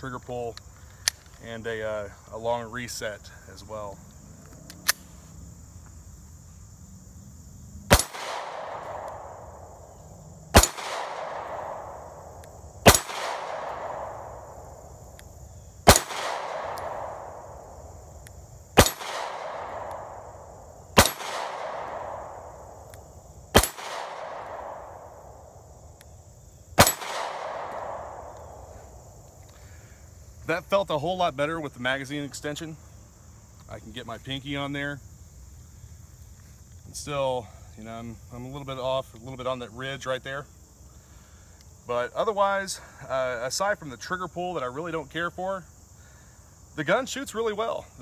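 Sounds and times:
crickets droning: 0:00.0 - 0:48.0
pistol shots with echo: 0:07.9 - 0:09.7, 0:10.5 - 0:14.6, 0:15.8 - 0:17.6, 0:18.8 - 0:22.8, 0:23.5 - 0:25.4, 0:26.8 - 0:28.7.

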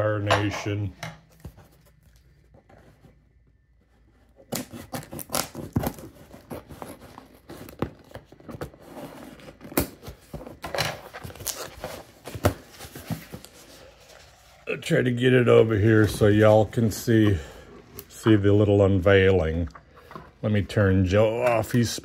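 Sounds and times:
packaging rustling and ripping: 0:04.4 - 0:14.6.

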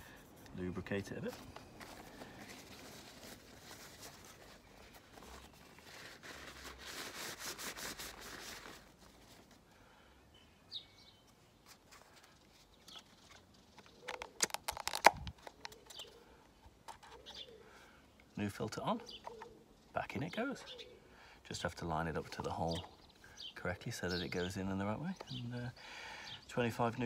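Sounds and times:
paper towel rustling: 0:00.0 - 0:09.6.

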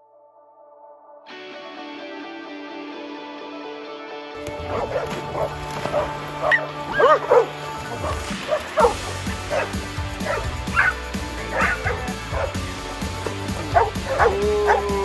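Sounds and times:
background music: 0:00.0 - 0:15.0
dogs barking and yipping: 0:04.4 - 0:15.0.

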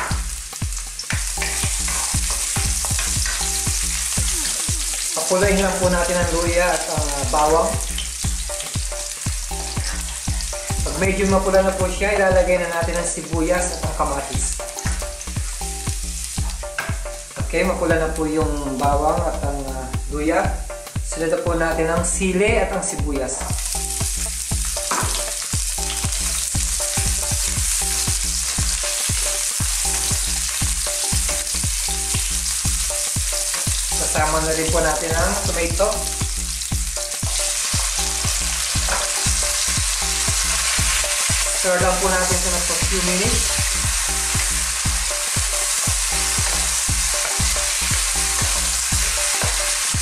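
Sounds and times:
low thumping beat: 0:00.0 - 0:50.0
onion sizzling in hot oil: 0:00.0 - 0:50.0
spatula stirring in pan: 0:01.0 - 0:05.9.

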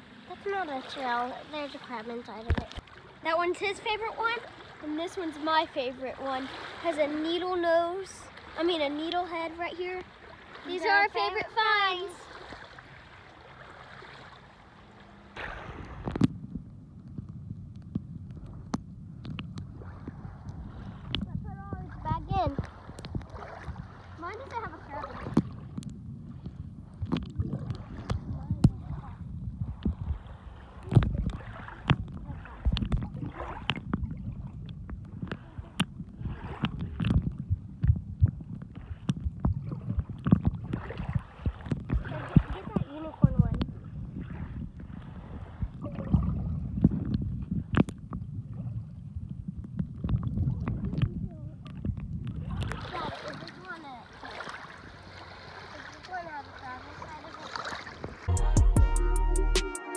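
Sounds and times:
wind and water hiss: 0:00.0 - 0:58.3
underwater clicks and knocks: 0:02.4 - 0:02.9, 0:16.0 - 0:23.4, 0:25.2 - 0:28.8, 0:30.8 - 0:36.0, 0:36.6 - 0:43.7, 0:49.6 - 0:52.8
underwater rumble: 0:07.2 - 0:53.6.

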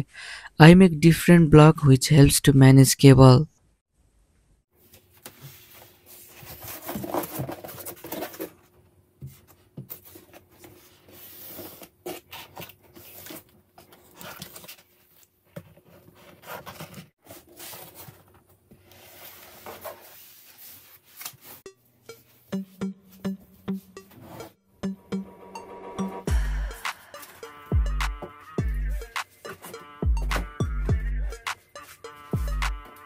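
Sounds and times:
cardboard scraping on table: 0:05.3 - 0:21.6.

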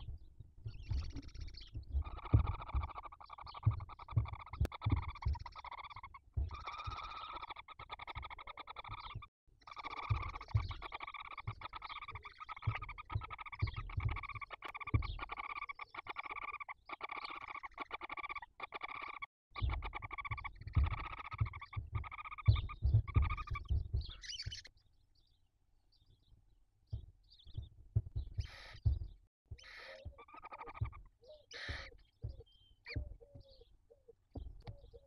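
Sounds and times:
dull low thumps: 0:00.0 - 0:07.2, 0:10.0 - 0:15.3, 0:19.5 - 0:24.6, 0:26.9 - 0:35.0
owl chicks rasping calls: 0:00.0 - 0:24.7, 0:26.9 - 0:35.0.

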